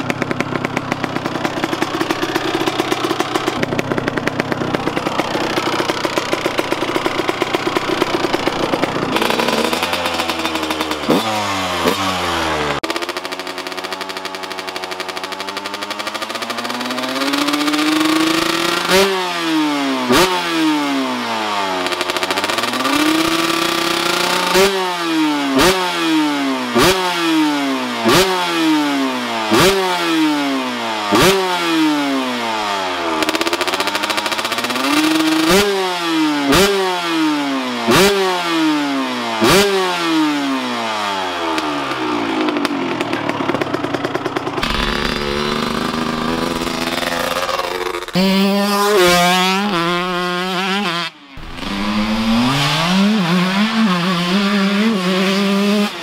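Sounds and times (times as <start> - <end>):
dirt bike engine revving: 0.0 - 56.0
sharp engine crack: 43.6 - 49.3, 51.4 - 53.1.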